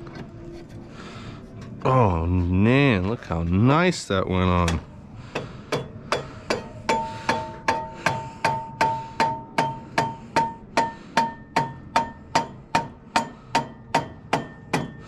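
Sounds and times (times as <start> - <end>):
hammer tapping on metal: 4.6 - 15.0.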